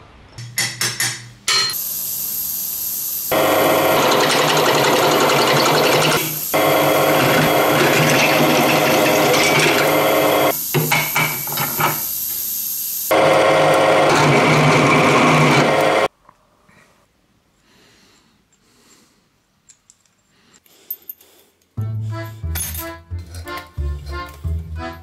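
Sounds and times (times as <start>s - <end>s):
motor hum: 1.8s - 10.8s
drill press boring into metal: 3.3s - 12.1s, 13.1s - 16.1s.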